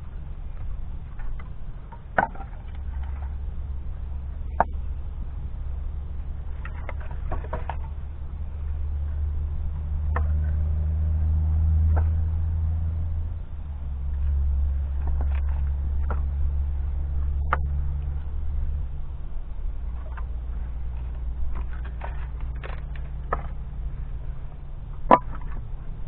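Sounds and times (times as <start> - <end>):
low engine hum: 0.0 - 26.0
firewood pieces knocking together: 1.2 - 3.2, 21.5 - 23.7, 25.0 - 25.6.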